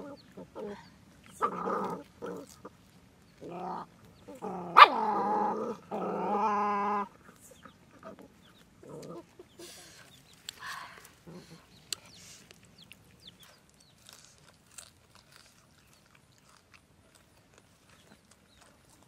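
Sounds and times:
dog yelping: 4.3 - 5.6.

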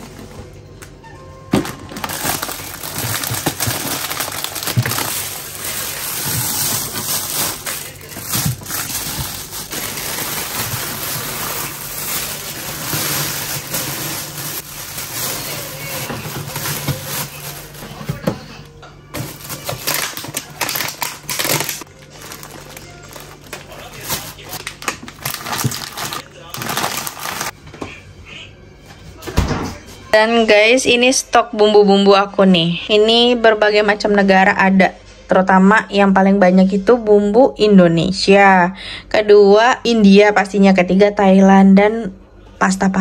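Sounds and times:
plastic packages rustling and knocking: 1.5 - 27.6.

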